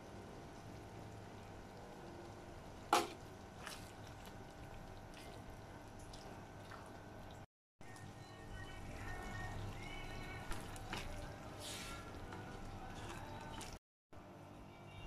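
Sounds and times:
spatula scraping in curry: 0:10.9 - 0:13.7.

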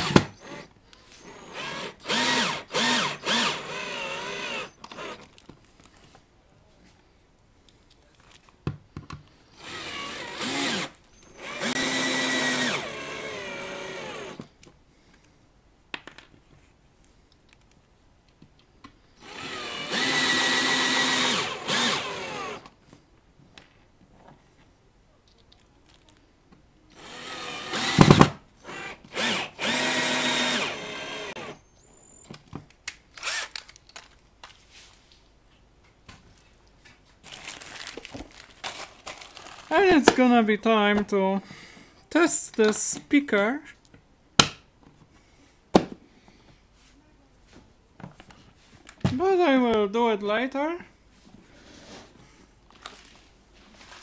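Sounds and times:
power screwdriver driving screws: 0:00.0 - 0:05.3, 0:09.6 - 0:14.5, 0:19.2 - 0:22.7, 0:26.9 - 0:31.7, 0:33.2 - 0:33.8.

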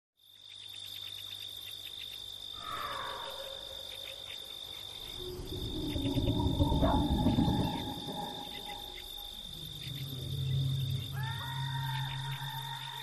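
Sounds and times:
crickets chirping: 0:00.2 - 0:13.0
low rumble: 0:02.6 - 0:13.0
falling tone: 0:04.8 - 0:13.0.

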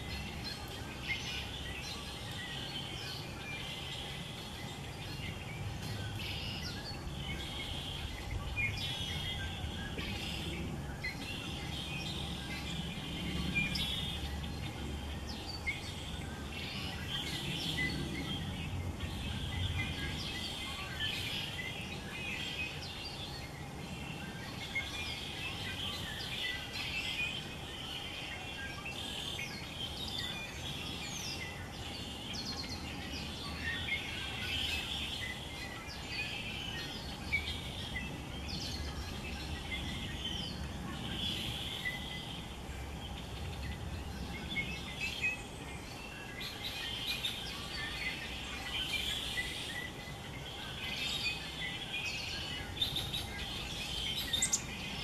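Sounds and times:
songbirds chirping: 0:00.0 - 0:55.0.

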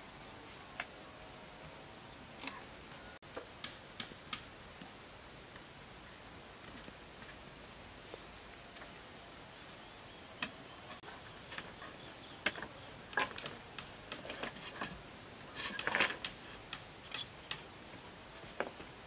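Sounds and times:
bamboo parts knocking and clicking: 0:03.3 - 0:04.5, 0:10.4 - 0:17.8.

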